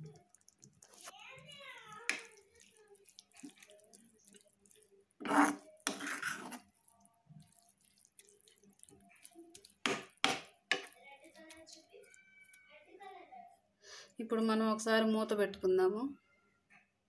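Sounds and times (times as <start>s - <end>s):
water splashing into a pan: 0.0s - 4.6s, 7.4s - 12.2s.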